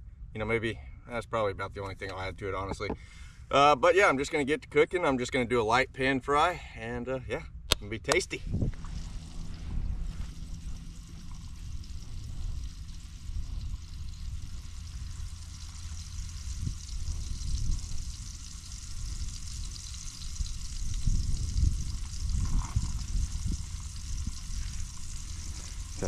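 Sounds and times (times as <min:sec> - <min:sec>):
low gusting rumble: 0:07.3 - 0:26.0
fish frying in oil: 0:08.7 - 0:26.0.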